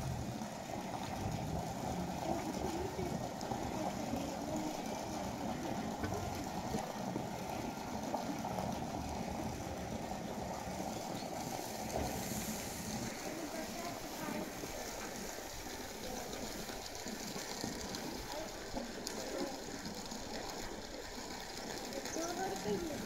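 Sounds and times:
faint distant voices: 0.3 - 8.6, 9.4 - 23.0.

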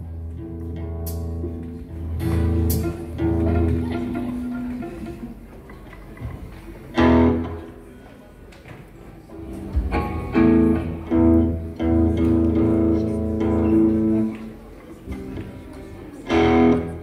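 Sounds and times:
rock band guitar chords: 16.3 - 17.0.

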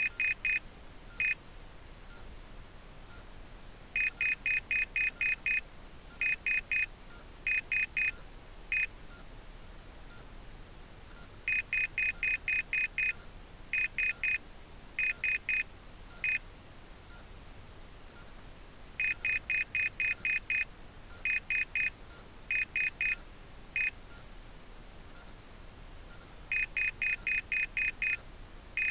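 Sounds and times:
altimeter short beeps: 0.0 - 0.6, 4.0 - 5.6, 6.2 - 6.9, 7.5 - 8.2, 11.2 - 13.2, 19.0 - 20.6, 21.2 - 23.2, 26.1 - 28.2.

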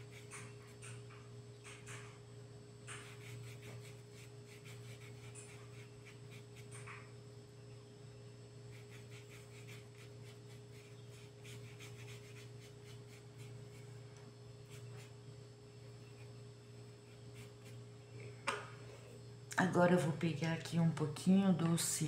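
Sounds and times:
low electrical hum: 0.0 - 22.0
paintbrush rubbing on fabric: 3.0 - 6.7, 8.7 - 14.0, 14.6 - 15.2, 17.0 - 17.9.

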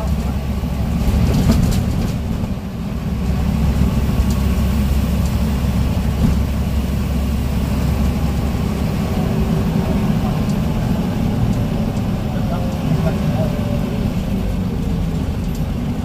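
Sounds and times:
bus engine droning: 0.0 - 16.0.

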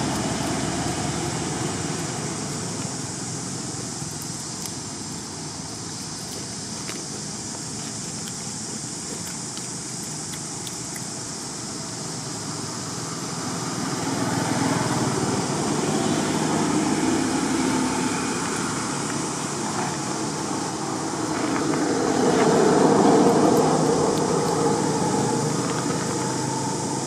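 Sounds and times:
vehicle engine running: 0.0 - 8.0, 12.2 - 27.0.

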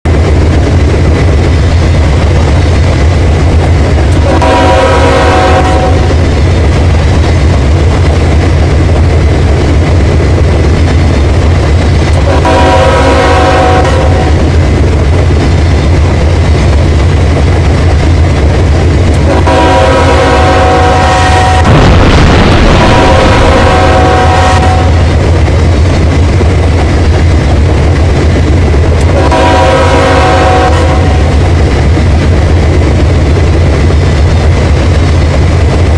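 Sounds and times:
train rumbling at speed: 0.0 - 35.9
train horn chord blasts: 4.2 - 6.2, 12.2 - 14.4, 19.3 - 21.8, 22.7 - 25.1, 29.1 - 31.3.

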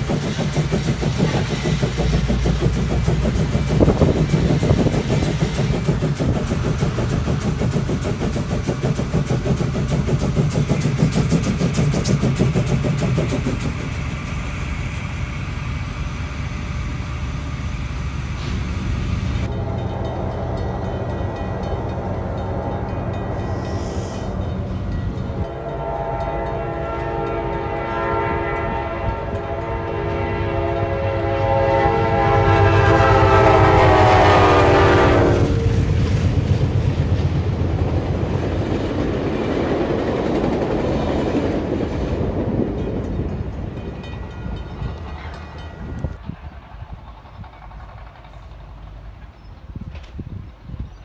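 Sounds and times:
heavy machine droning: 0.0 - 38.2
steady rumble: 0.0 - 50.6.

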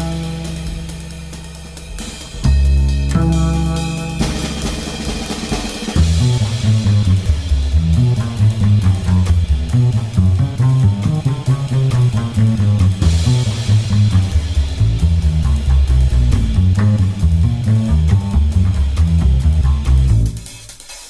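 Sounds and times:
low bass line: 0.0 - 20.5
rock music with drums and guitar: 0.0 - 21.0.

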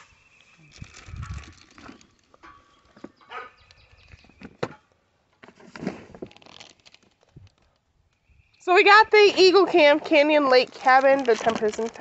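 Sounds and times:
packaging rustling and crinkling: 0.4 - 3.1, 5.4 - 7.9, 9.8 - 12.0.

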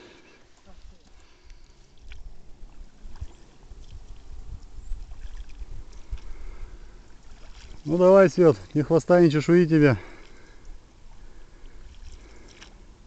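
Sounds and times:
wind buffeting microphone: 2.2 - 8.2.

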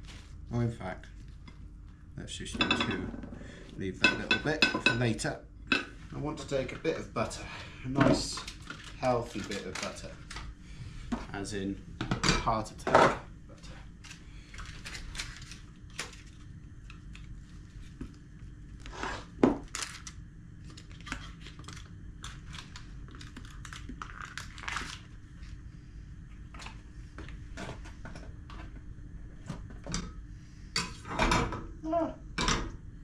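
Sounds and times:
faint steady hum: 0.0 - 33.0
paper wrapper crinkling and tearing: 8.3 - 10.4, 14.0 - 16.5, 19.6 - 25.6.

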